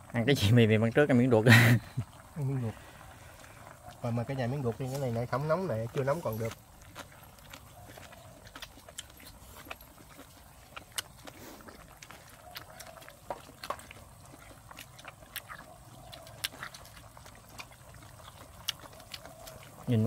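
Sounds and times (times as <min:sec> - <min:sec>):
people chewing and slurping: 0:00.0 - 0:20.0.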